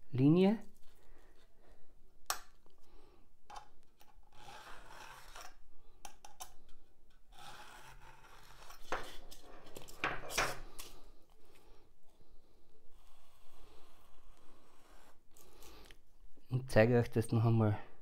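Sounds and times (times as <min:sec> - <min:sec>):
metal spatula scraping on ruler: 0:04.1 - 0:05.6, 0:07.1 - 0:10.7, 0:12.9 - 0:15.7.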